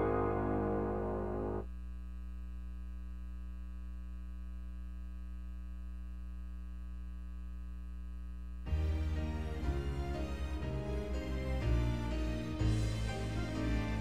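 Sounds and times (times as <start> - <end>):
music: 0.0 - 1.6, 8.7 - 14.0
electrical hum: 0.0 - 8.8.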